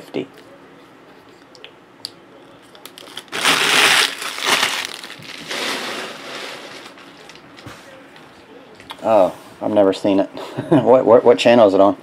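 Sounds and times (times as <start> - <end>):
foil wrappers crumpled by hand: 2.9 - 7.4.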